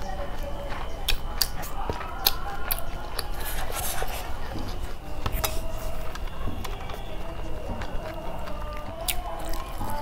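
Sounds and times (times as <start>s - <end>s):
wet mouth clicks and chewing: 0.4s - 7.1s, 7.7s - 10.0s.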